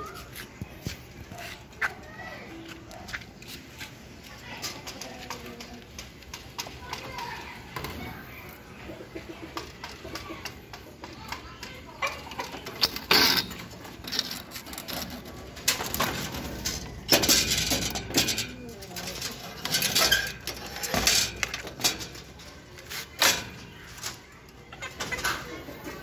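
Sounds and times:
metal cage clinking: 0:12.2 - 0:24.2.

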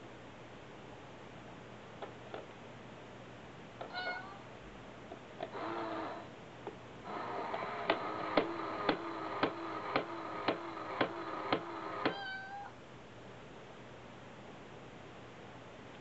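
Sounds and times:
short meow: 0:03.9 - 0:04.4, 0:12.1 - 0:12.8
small motor whirring: 0:05.4 - 0:06.3, 0:07.0 - 0:12.2.

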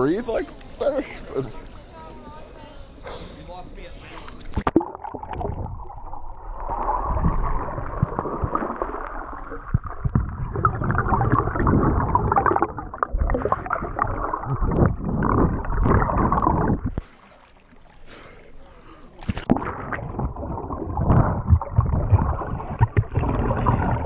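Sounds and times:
underwater gurgling and bubbling: 0:04.4 - 0:18.0, 0:19.4 - 0:24.0.

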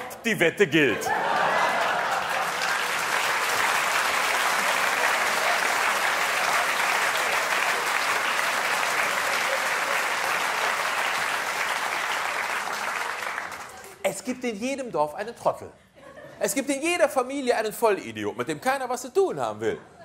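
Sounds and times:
audience applauding: 0:01.1 - 0:14.0.

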